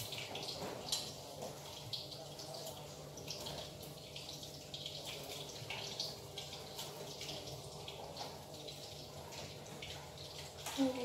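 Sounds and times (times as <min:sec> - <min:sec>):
oil sizzling in a frying pan: 0:00.0 - 0:11.0.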